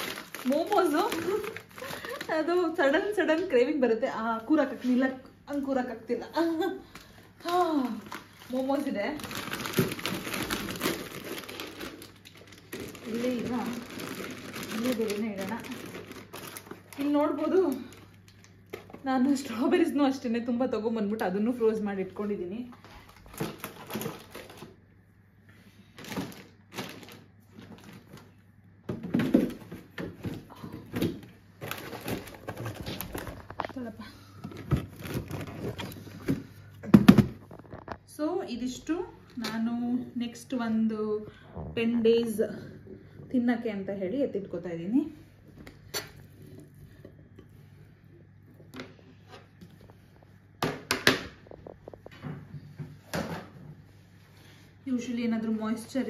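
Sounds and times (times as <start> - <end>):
frozen food packets clattering: 0.0 - 3.3, 6.6 - 19.6, 22.8 - 24.8, 25.9 - 38.1
plastic bags rustling: 0.0 - 3.5, 6.4 - 19.7, 22.2 - 24.8, 25.8 - 38.0.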